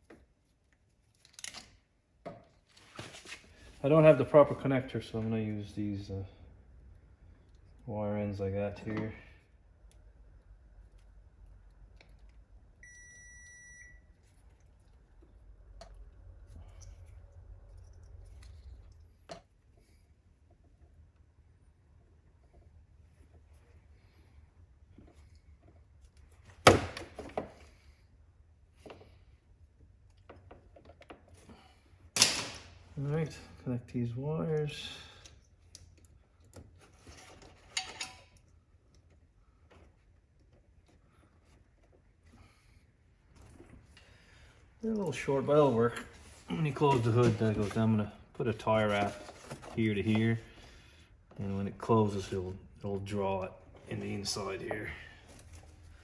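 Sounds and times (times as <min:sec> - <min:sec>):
wire connectors clicking and rubbing: 0:00.0 - 0:03.4, 0:34.5 - 0:42.2
low steady hum: 0:00.0 - 0:56.0
electronic beep: 0:12.8 - 0:14.0.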